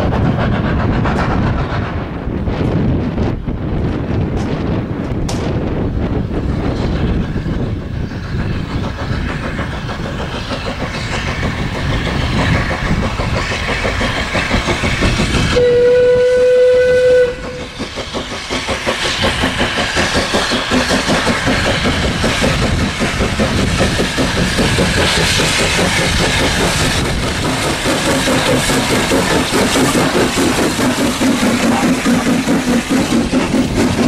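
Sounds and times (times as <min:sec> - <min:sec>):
steam locomotive exhaust beats: 0:00.0 - 0:34.0
steam whistle blast: 0:15.5 - 0:17.7.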